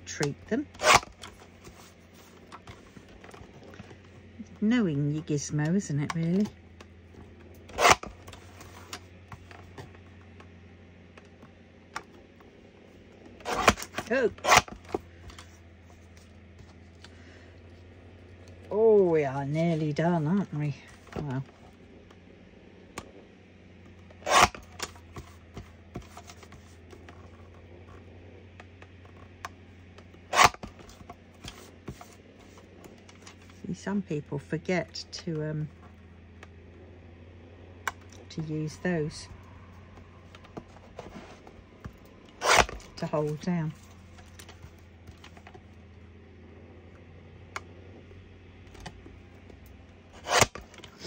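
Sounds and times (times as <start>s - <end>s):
faint low hum: 0.0s - 51.0s
card being cut rasping: 7.6s - 9.0s, 13.4s - 15.4s, 24.2s - 25.0s, 30.2s - 32.2s, 40.7s - 43.1s, 50.1s - 51.0s.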